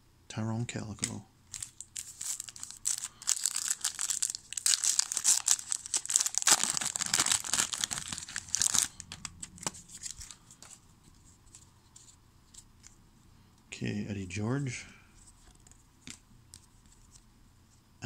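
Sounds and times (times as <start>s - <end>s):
wrapper tearing and crinkling: 1.5s - 10.4s.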